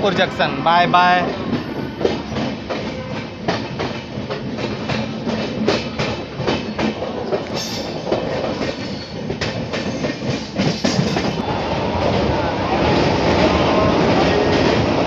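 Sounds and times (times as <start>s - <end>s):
train running rumble: 0.0s - 15.0s
train wheels clickety-clack: 1.0s - 11.4s.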